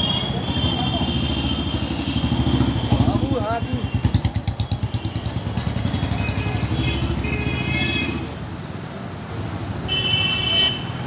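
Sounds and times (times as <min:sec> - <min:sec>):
street traffic: 0:00.0 - 0:11.0
motorcycle engine running: 0:01.9 - 0:07.3.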